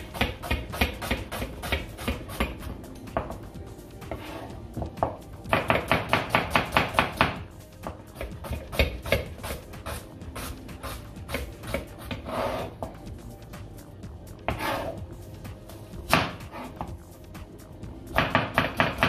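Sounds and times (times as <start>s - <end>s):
knife chopping on cutting board: 0.0s - 3.4s, 4.1s - 9.6s, 11.2s - 13.0s.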